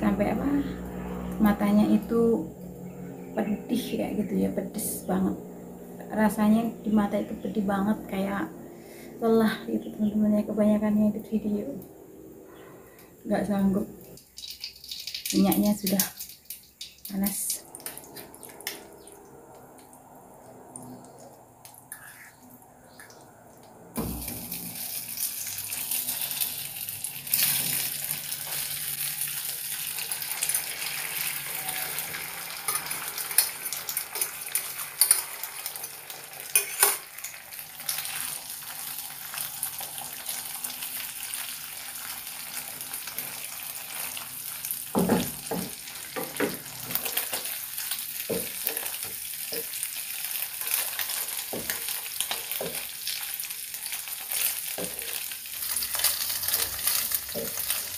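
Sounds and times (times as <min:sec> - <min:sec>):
egg sizzling in hot oil: 0:14.2 - 0:19.1, 0:24.0 - 0:57.9.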